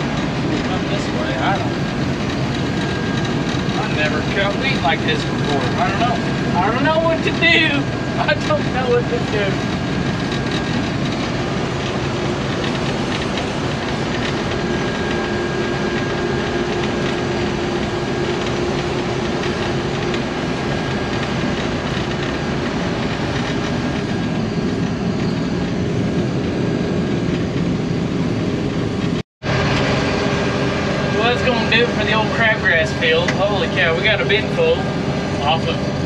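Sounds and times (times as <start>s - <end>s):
combine harvester running: 0.0s - 36.0s
faint steady whine: 0.0s - 36.0s.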